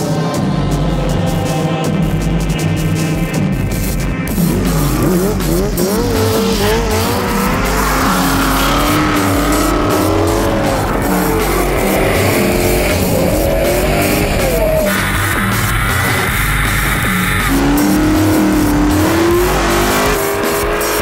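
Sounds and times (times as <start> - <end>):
engines revving hard: 0.0 - 21.0
rock music: 0.0 - 21.0.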